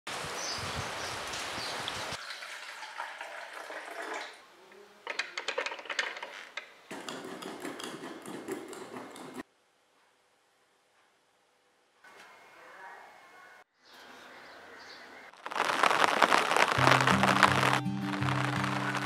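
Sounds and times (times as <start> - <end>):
rain falling: 0.1 - 2.2, 15.3 - 19.0
coffee maker gurgling: 2.2 - 4.4
clicks and pops: 15.4 - 19.0.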